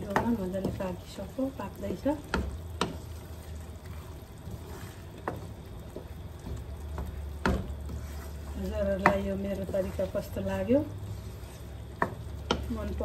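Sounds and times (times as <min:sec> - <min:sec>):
wooden spoon knocking pan: 0:00.0 - 0:01.0, 0:02.2 - 0:03.1, 0:05.2 - 0:07.9, 0:08.6 - 0:10.0, 0:12.0 - 0:13.0
wet sizzling and bubbling in pan: 0:00.0 - 0:13.0.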